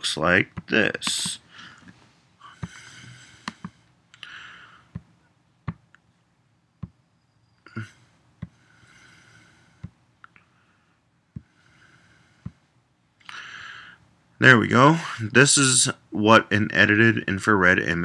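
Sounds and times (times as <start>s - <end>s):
soft rustling: 0.6s - 4.0s
computer mouse clicking: 3.4s - 3.8s.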